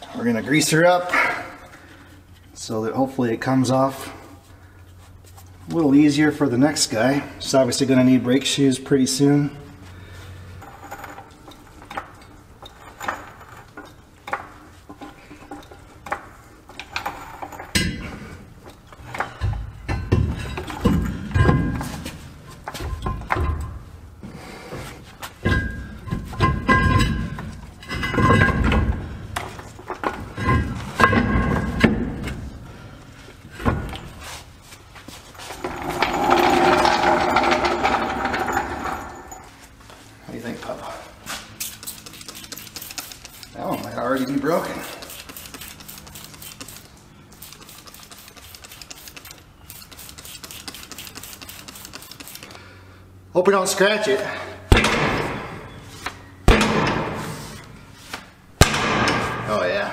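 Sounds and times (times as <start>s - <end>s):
metal scraping and clunking: 24.8s - 32.5s, 35.0s - 39.8s
spray bottle hissing spurts: 41.5s - 43.6s, 44.8s - 52.6s.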